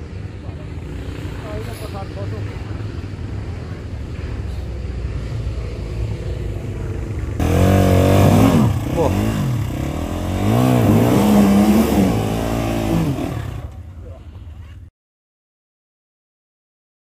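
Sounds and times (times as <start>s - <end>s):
dirt bike engine revving: 7.0s - 13.9s.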